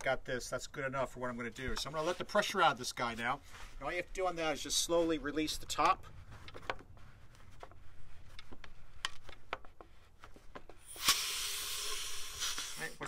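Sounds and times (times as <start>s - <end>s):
pressurised air hissing: 10.8s - 13.0s.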